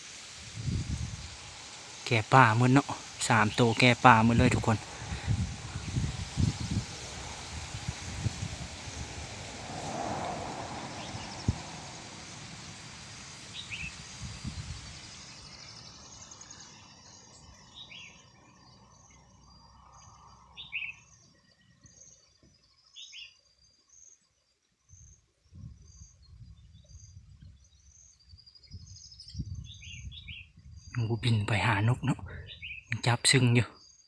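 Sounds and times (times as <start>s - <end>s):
rushing noise: 0.0s - 17.0s
bird calls: 10.8s - 12.6s, 13.2s - 24.2s, 25.8s - 34.0s.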